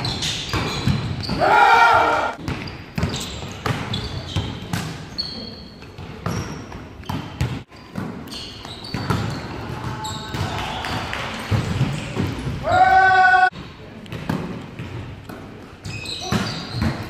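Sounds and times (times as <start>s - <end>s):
shoe squeaks: 0.0s - 1.5s, 2.5s - 10.4s, 15.8s - 17.0s
players shouting: 1.3s - 2.4s, 12.6s - 13.5s.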